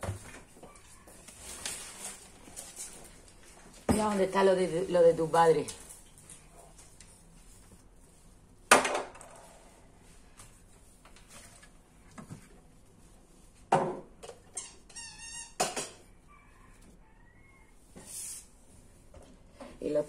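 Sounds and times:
kitchen items knocking and clattering: 15.6s - 16.1s.

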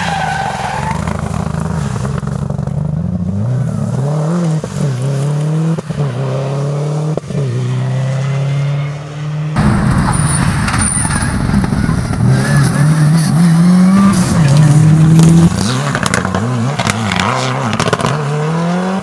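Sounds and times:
rally car accelerating: 0.0s - 19.0s.

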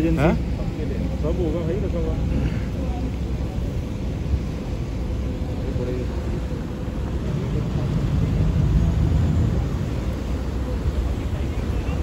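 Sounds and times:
churning wake: 0.0s - 12.0s
ferry engines rumbling: 0.0s - 12.0s
wind buffeting microphone: 3.0s - 12.0s.

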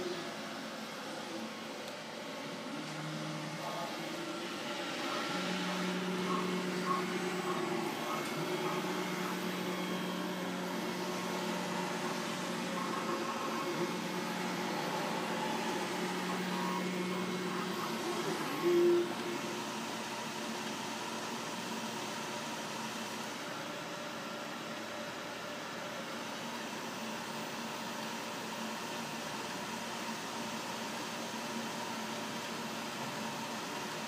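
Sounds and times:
cooling fans hissing: 0.0s - 34.0s
motors whining: 1.8s - 20.0s.

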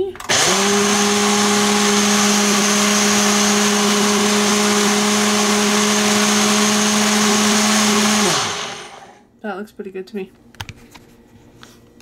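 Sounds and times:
blender motor whining: 0.2s - 9.2s.

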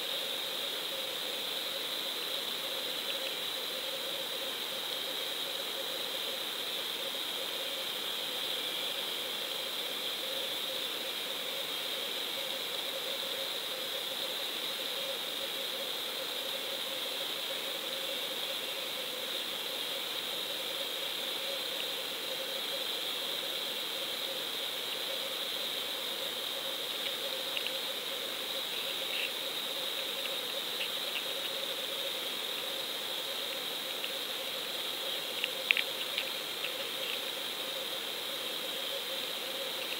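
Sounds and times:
faint clicks: 3.0s - 3.4s, 27.0s - 27.8s, 33.5s - 34.2s, 35.2s - 37.4s.

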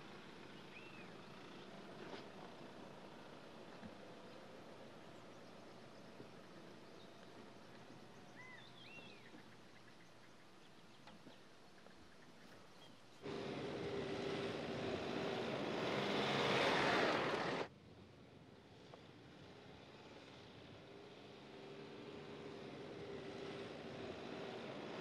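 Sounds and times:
pickup truck on dirt track: 0.0s - 10.2s, 12.5s - 25.0s
faint bird chirps: 0.5s - 1.7s, 4.2s - 13.2s.

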